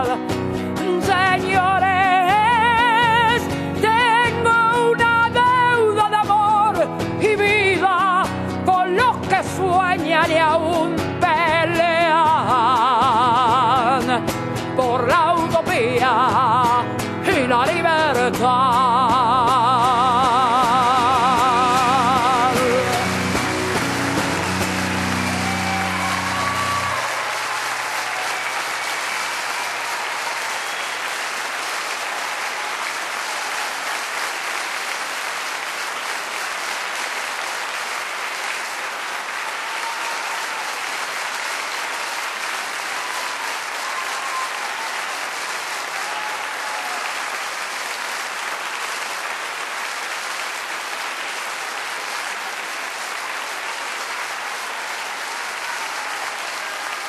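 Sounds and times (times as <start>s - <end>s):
audience applauding: 18.8s - 57.0s.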